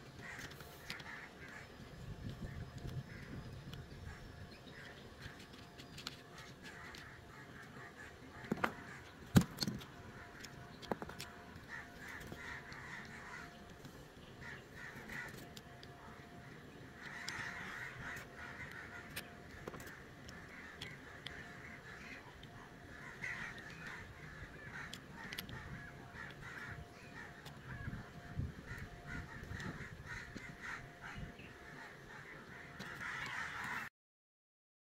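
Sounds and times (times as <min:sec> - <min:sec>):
crows cawing: 0:00.2 - 0:01.8, 0:02.4 - 0:03.4, 0:06.3 - 0:09.3, 0:10.0 - 0:13.7, 0:14.4 - 0:33.9
plastic parts clicking: 0:08.5 - 0:11.5, 0:24.5 - 0:26.4.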